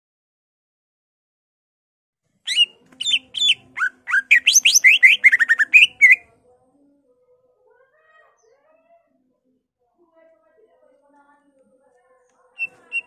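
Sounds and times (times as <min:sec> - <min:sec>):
bird singing whistled notes: 0:02.5 - 0:06.2.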